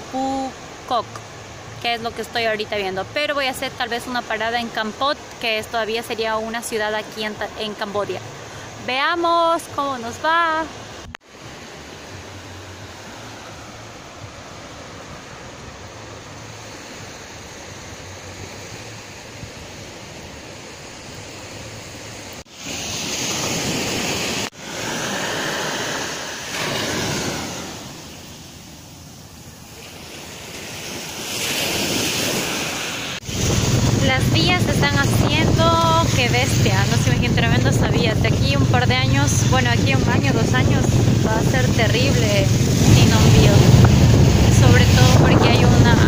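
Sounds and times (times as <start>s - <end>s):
surf washing onto a beach: 10.4s - 46.0s
wind on the microphone: 30.8s - 46.0s.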